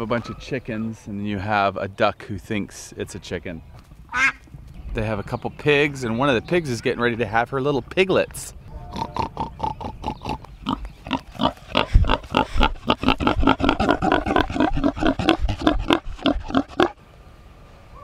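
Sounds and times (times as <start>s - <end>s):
pig grunting: 8.8s - 17.0s.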